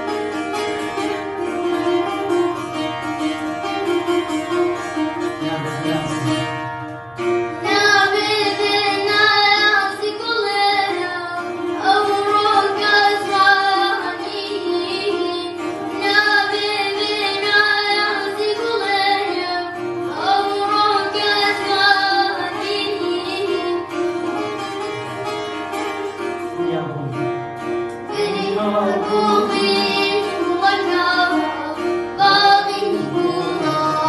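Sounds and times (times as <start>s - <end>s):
plucked lute: 0.0s - 34.0s
boy singing: 7.6s - 24.2s, 28.1s - 34.0s.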